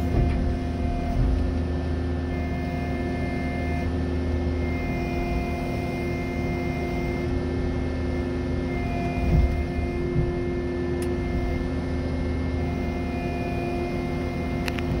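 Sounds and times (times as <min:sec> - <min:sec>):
diesel engine running: 0:00.0 - 0:15.0
hydraulic whine: 0:00.0 - 0:15.0
dull thumps: 0:09.2 - 0:10.6.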